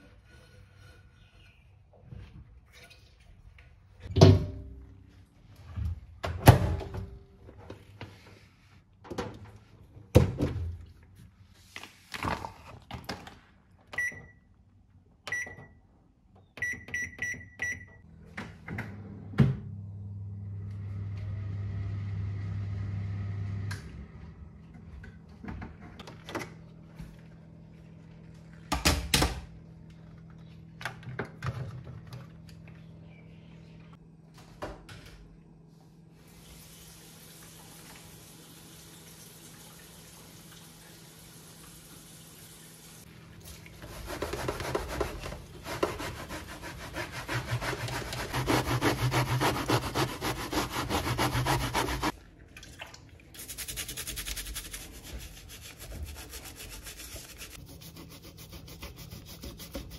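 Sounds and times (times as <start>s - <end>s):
microwave keypad beeps: 14.0s - 14.4s, 15.3s - 15.8s, 16.6s - 18.0s
microwave humming: 16.6s - 35.6s.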